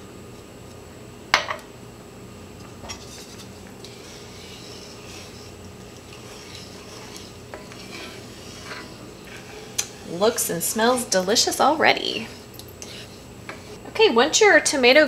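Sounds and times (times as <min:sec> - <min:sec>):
wooden spoon scraping skillet: 0:02.8 - 0:13.9.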